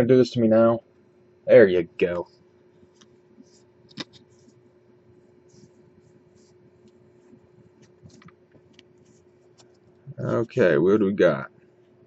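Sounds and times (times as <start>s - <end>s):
faint steady hum: 0.0s - 12.0s
trading cards rustling and ticking: 5.6s - 10.7s.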